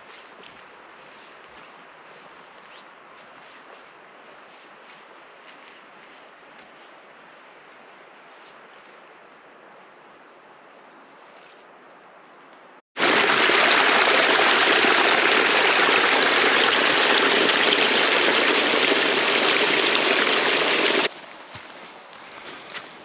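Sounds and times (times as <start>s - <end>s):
stream splashing over rocks: 13.0s - 21.1s.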